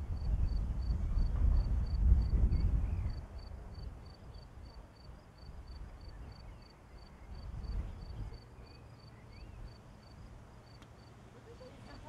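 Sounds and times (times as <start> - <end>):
distant thunder rumbling: 0.0 - 3.2.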